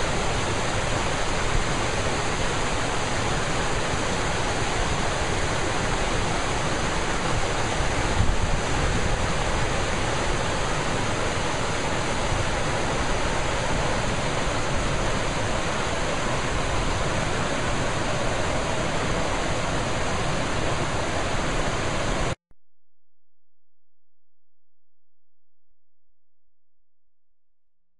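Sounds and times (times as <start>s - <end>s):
water rushing over rocks: 0.0s - 22.4s.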